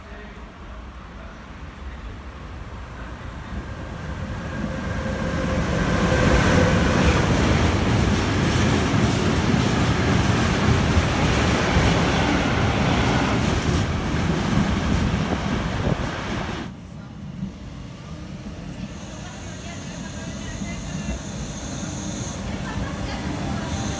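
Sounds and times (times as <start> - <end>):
train wagons rumbling on rails: 3.7 - 16.7
locomotive whine: 4.0 - 8.6, 18.2 - 23.9.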